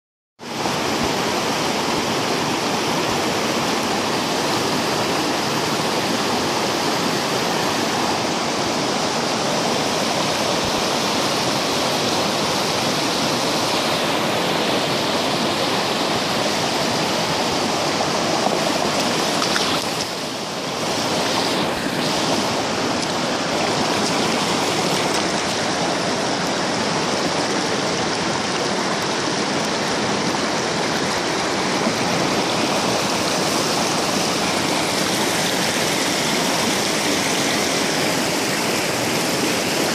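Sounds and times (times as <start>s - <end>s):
creek rushing over stones: 0.4s - 39.9s
water pouring through sluice box: 9.7s - 39.9s.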